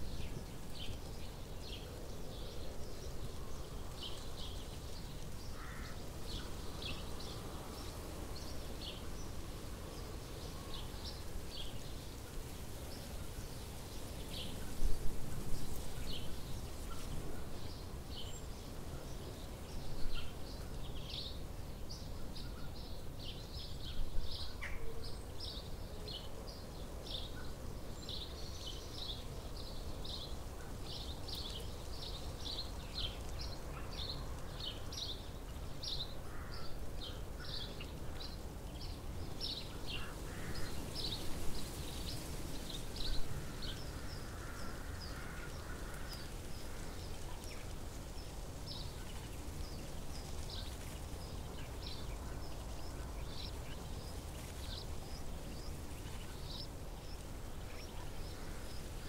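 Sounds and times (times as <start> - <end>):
low background noise: 0.0 - 59.0
small songbird chirping: 15.6 - 59.0.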